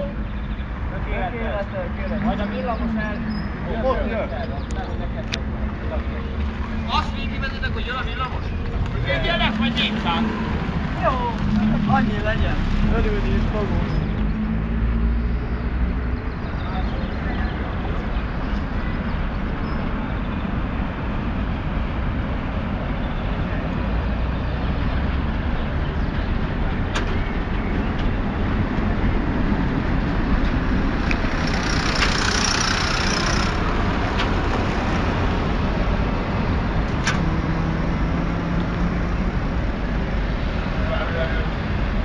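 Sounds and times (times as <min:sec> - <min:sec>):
tram rumbling on rails: 0:17.5 - 0:38.0
sharp clicks: 0:31.0 - 0:34.4.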